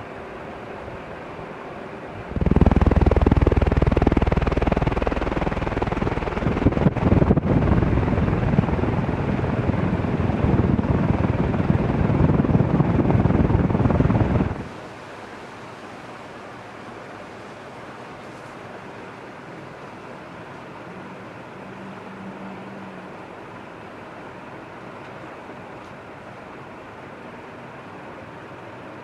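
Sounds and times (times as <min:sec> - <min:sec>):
ceiling fan running: 0:00.0 - 0:29.0
fan downdraft buffeting microphone: 0:02.1 - 0:21.6.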